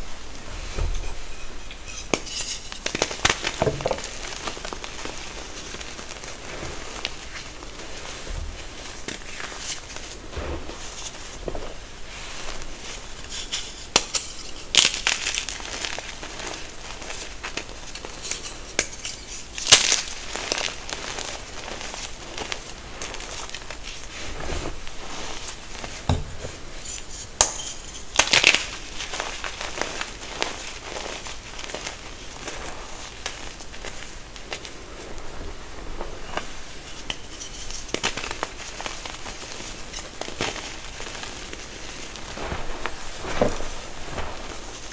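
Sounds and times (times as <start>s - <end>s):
chalk crunching and crackling: 1.7s - 44.9s
sharp chalk crunches: 2.1s - 26.1s.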